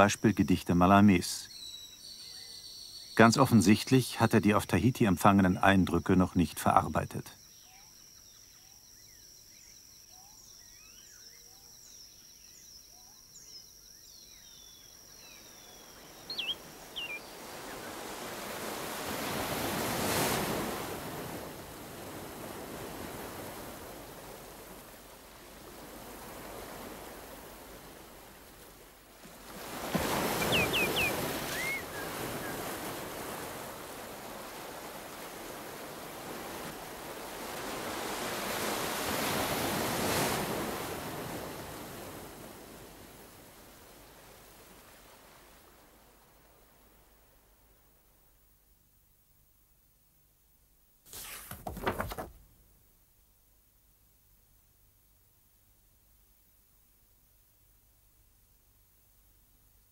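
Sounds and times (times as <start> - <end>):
faint insect chirping: 0.0 - 50.7
high bird cries: 15.5 - 17.8, 30.2 - 32.6
sea waves washing: 15.9 - 47.2.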